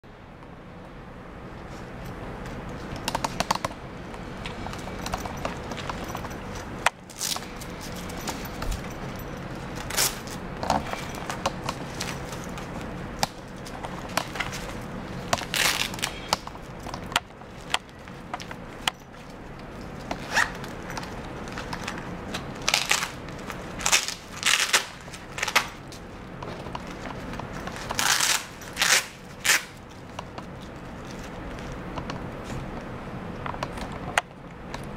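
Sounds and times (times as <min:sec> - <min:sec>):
fabric rustling and scraping: 0:01.5 - 0:32.9
pocket closure rasps: 0:20.0 - 0:25.8, 0:26.4 - 0:31.7.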